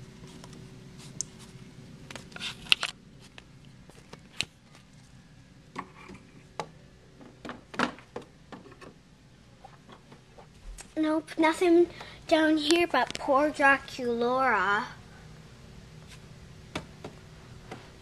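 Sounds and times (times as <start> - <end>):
camcorder handling noise: 2.6 - 3.0.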